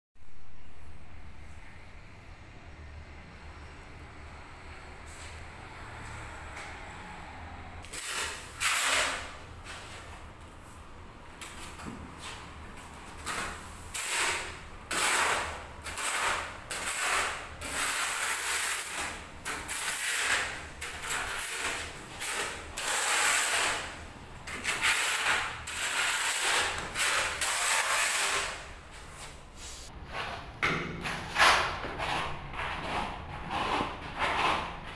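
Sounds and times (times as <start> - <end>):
trowel scraping adhesive on tile: 7.8 - 10.2, 13.1 - 34.9.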